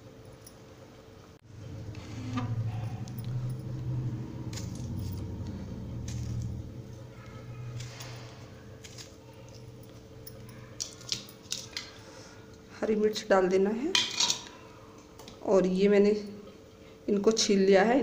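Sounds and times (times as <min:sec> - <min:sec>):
low handling rumble: 0:01.4 - 0:10.5.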